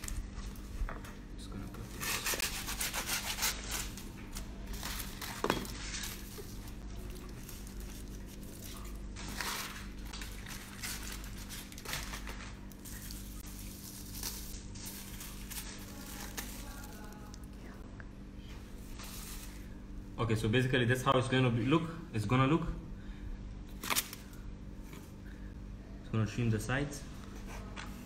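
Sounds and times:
foil and cling film crinkling: 0.0 - 0.8, 3.2 - 17.7
steady low hum: 0.0 - 28.0.

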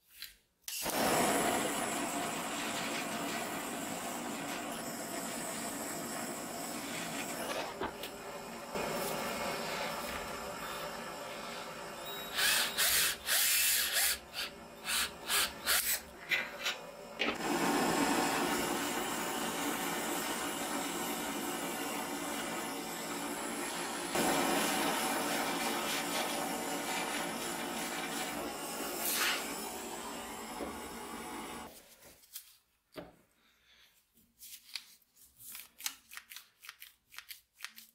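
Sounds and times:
blowtorch flame hissing: 0.8 - 31.7
cordless drill whirring: 11.8 - 16.1.

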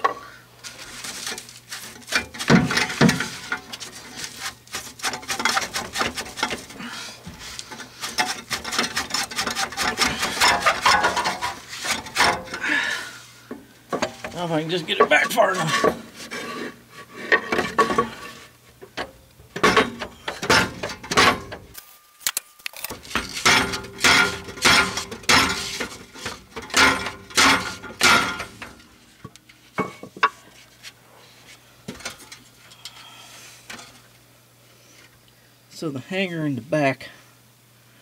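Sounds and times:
metal tool clanking on exhaust pipe: 1.3 - 3.8, 7.7 - 12.7, 17.3 - 21.7, 23.0 - 29.0.

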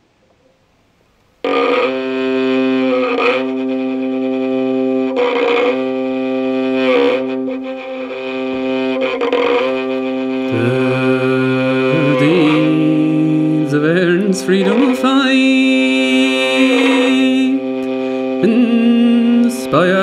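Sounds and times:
fiddle playing slow air: 1.4 - 20.0.

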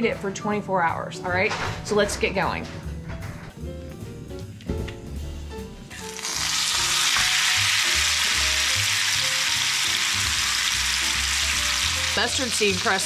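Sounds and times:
faint background music: 0.0 - 13.0
meat sizzling in a hot pan: 5.9 - 13.0.

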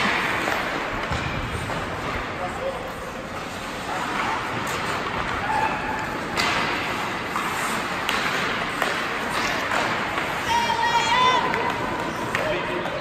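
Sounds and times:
hockey sticks and puck clacking: 0.0 - 13.0
skates scraping ice: 0.0 - 13.0
young players shouting: 10.4 - 11.6.

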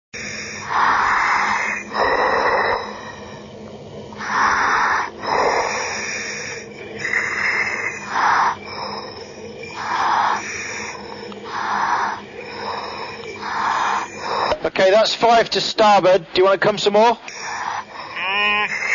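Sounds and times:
diver breathing underwater: 0.2 - 14.6.

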